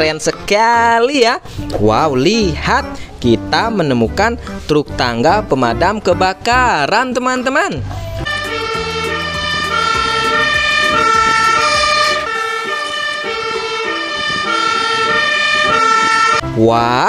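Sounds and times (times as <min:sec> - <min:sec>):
fire engine two-tone siren: 0:08.2 - 0:16.4.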